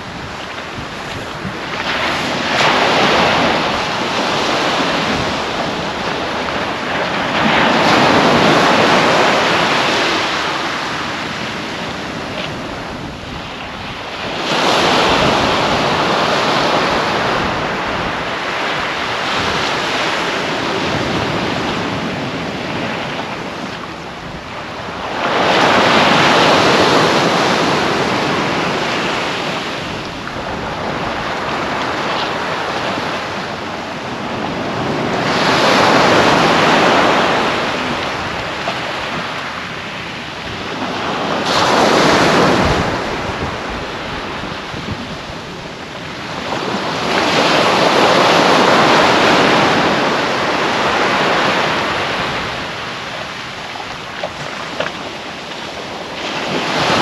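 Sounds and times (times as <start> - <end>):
small waves breaking on beach: 0.0 - 57.0.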